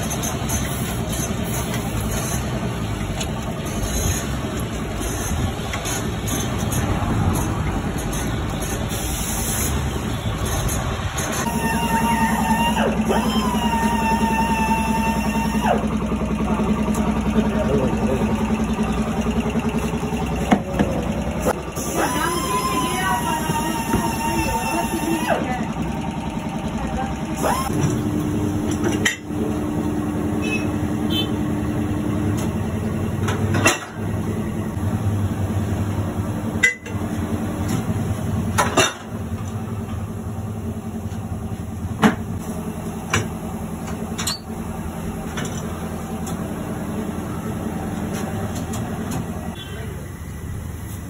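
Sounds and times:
tyre-changing machine motor hum: 11.0 - 34.8.

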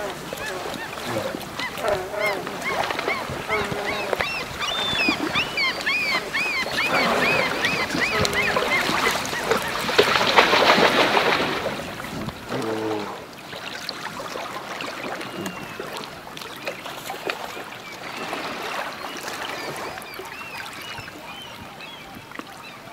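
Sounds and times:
high squealing animal calls: 0.0 - 9.7
bear splashing through water: 0.0 - 17.5.

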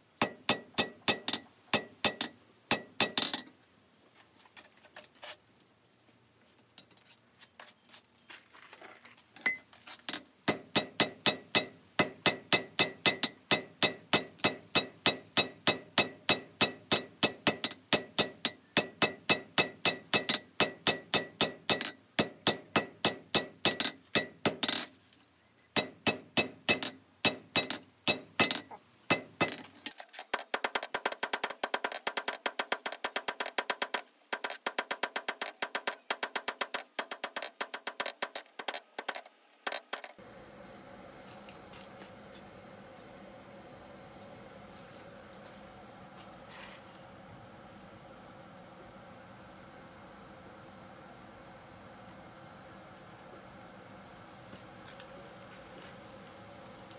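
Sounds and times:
hammer ringing on anvil: 10.5 - 24.6, 25.8 - 29.6.

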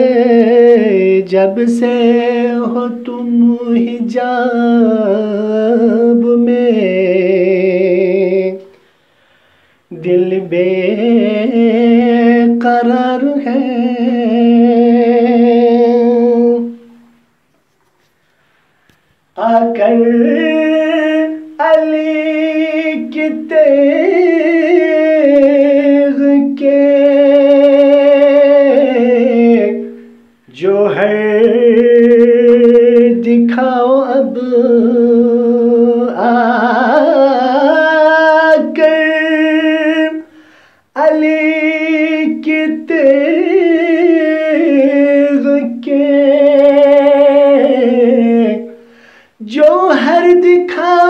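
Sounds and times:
man singing unaccompanied: 0.0 - 9.0, 9.8 - 17.4, 19.1 - 51.0.

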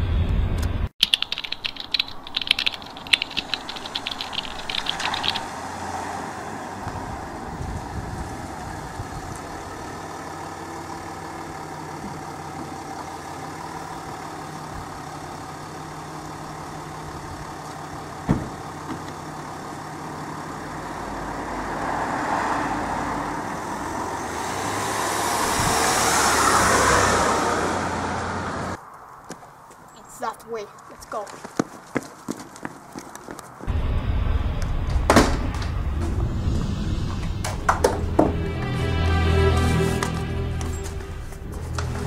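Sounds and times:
engine and tyre noise rush: 0.0 - 30.0, 30.9 - 42.0
sharp click: 0.6 - 5.5
car engine idling: 8.6 - 21.3.

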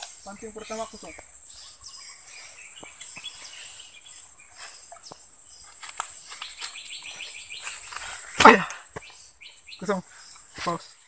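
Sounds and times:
bird chirping: 0.0 - 11.0
high-pitched insect hum: 0.0 - 11.0
footsteps through undergrowth: 2.3 - 9.3.

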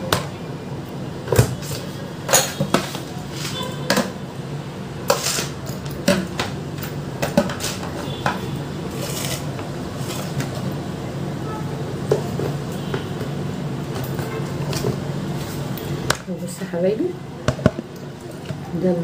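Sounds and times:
dishes and utensils clattering: 1.4 - 4.2.

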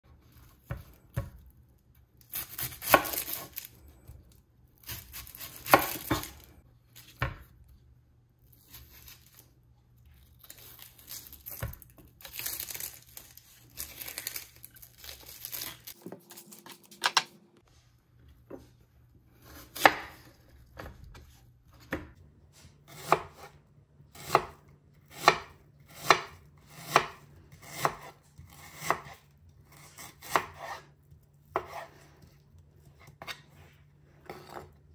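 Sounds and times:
knife cutting onion on board: 0.1 - 1.5, 2.2 - 4.2, 4.8 - 7.6, 19.4 - 34.9
onion skin rustling: 8.4 - 17.1
knife slicing on wooden board: 31.5 - 32.0.

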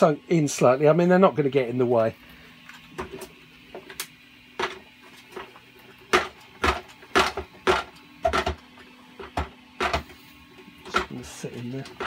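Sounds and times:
plastic parts knocking and clicking: 6.1 - 8.6.

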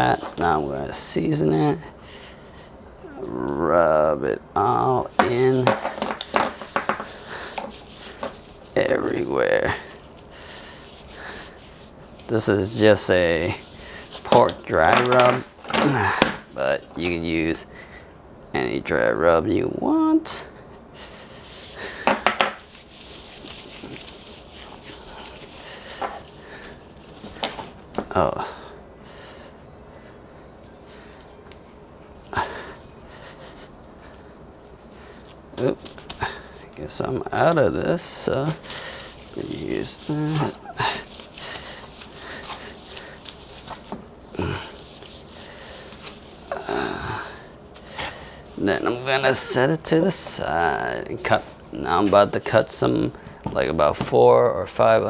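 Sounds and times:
gloved hands rubbing meat: 6.2 - 14.3, 22.6 - 27.9, 38.3 - 46.6.

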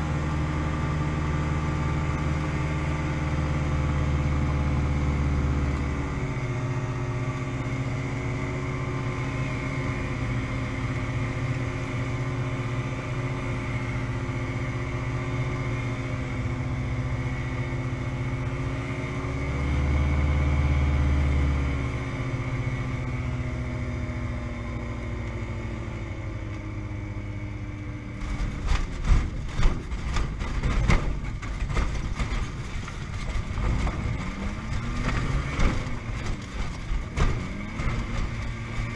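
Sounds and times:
light aircraft engine: 0.0 - 38.9
wheels knocking on rough ground: 28.2 - 38.9.

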